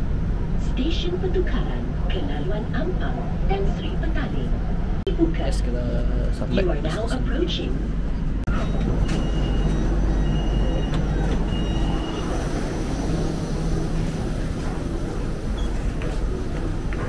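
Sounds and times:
station hum: 0.0 - 17.0
train low rumble: 0.0 - 17.0
high electronic beep: 8.5 - 13.5.

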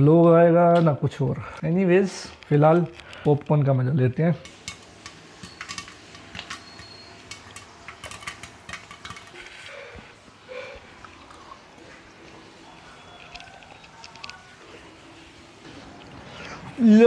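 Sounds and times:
popcorn kernels clinking in pan: 4.3 - 9.9, 12.6 - 14.8.

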